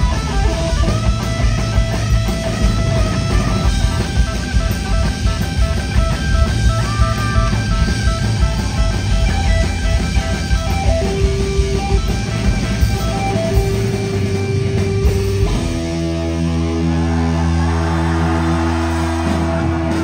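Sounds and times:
drums: 0:00.0 - 0:20.0
punk rock band playing: 0:00.0 - 0:20.0.

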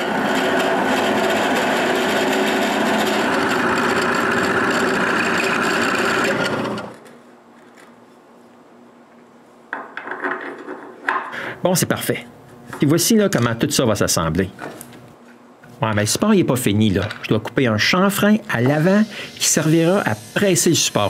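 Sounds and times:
drill press boring wood: 0:00.0 - 0:07.0.

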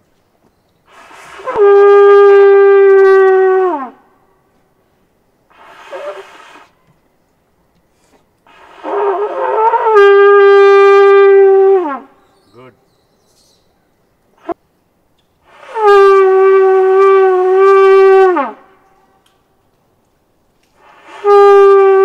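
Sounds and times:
conch shell blown: 0:01.0 - 0:04.0, 0:08.5 - 0:12.2, 0:15.5 - 0:19.2, 0:20.8 - 0:22.0.

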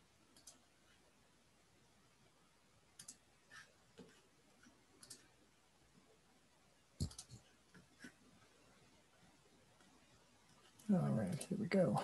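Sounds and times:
computer mouse clicking: 0:00.3 - 0:00.7, 0:03.0 - 0:05.3, 0:07.0 - 0:08.2.

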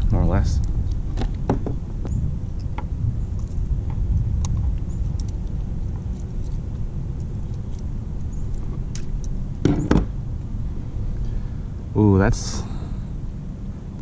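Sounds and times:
wind rumble on microphone: 0:00.0 - 0:14.0
louder knocks: 0:09.6 - 0:10.1.

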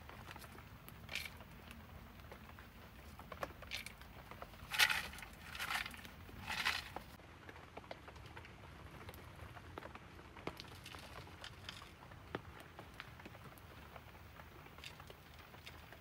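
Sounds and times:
stones rattling in bamboo tube: 0:00.0 - 0:01.8, 0:02.4 - 0:07.2, 0:10.6 - 0:12.0, 0:14.6 - 0:16.0.

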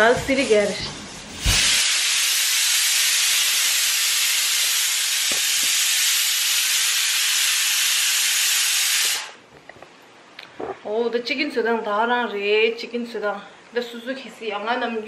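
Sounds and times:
loud steady hiss: 0:00.0 - 0:09.5.

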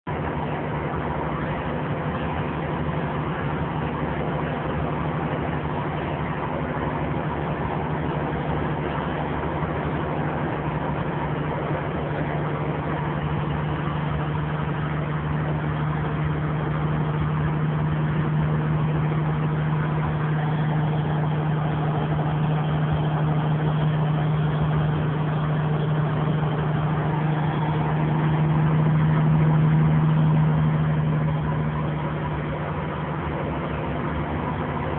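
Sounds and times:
diesel truck engine drone: 0:00.0 - 0:34.9.

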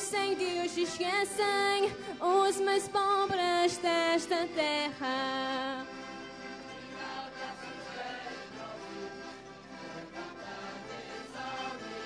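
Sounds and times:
choir singing: 0:05.7 - 0:12.0.

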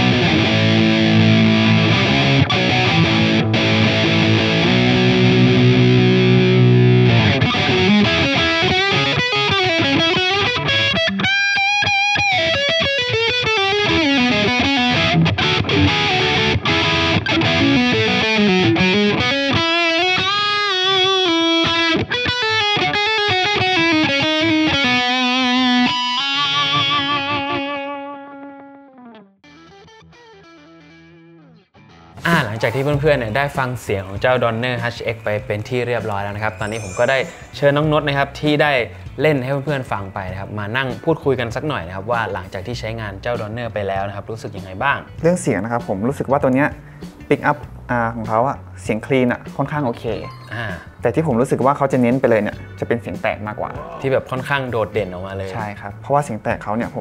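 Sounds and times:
distorted electric guitar: 0:00.0 - 0:33.7, 0:53.5 - 0:55.6.

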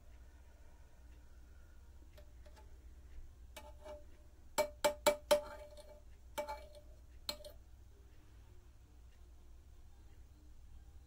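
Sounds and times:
metal tool clinking on pot: 0:04.6 - 0:07.6.

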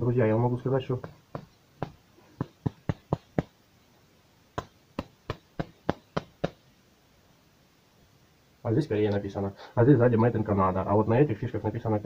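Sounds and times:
hard objects tapping and clicking: 0:01.0 - 0:03.6, 0:04.6 - 0:06.6.

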